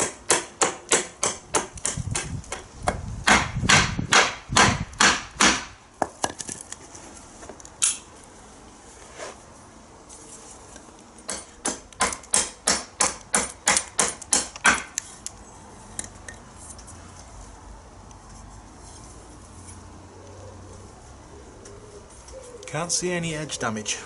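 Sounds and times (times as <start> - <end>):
knife chopping wood: 0.0 - 6.5, 11.3 - 15.0.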